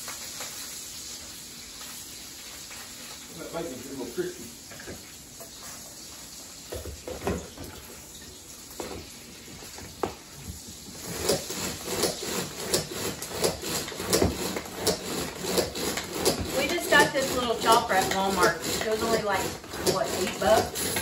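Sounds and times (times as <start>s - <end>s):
cord chopper whirring: 11.0s - 21.0s.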